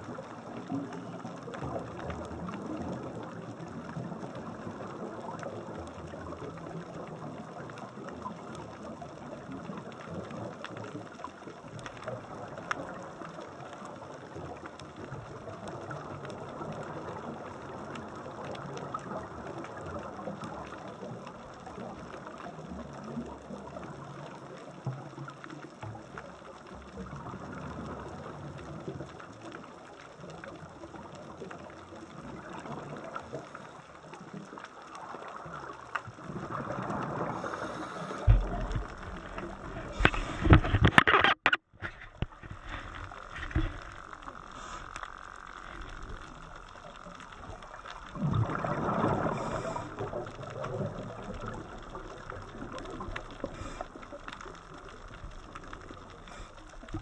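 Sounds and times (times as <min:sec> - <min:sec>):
faint clicks: 0:00.0 - 0:57.0
diver's exhaled bubbles: 0:36.2 - 0:41.1, 0:47.5 - 0:55.0
underwater hiss: 0:36.5 - 0:40.6, 0:43.6 - 0:46.1, 0:48.4 - 0:54.9, 0:55.9 - 0:57.0.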